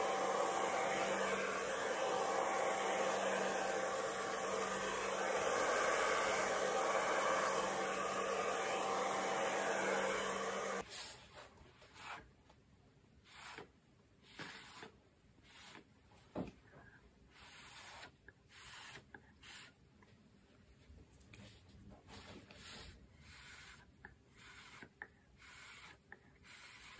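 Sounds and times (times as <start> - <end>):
hair dryer blowing: 0.0 - 10.9.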